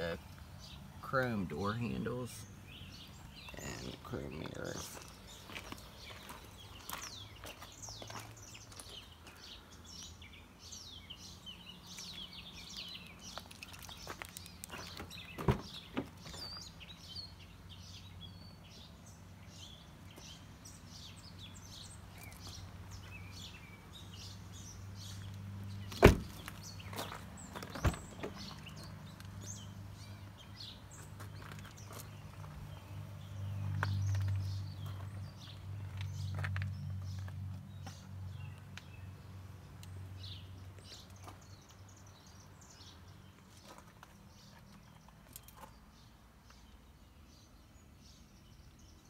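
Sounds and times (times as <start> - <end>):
small birds chirping: 0.0 - 49.0
car doors knocking: 26.0 - 26.4.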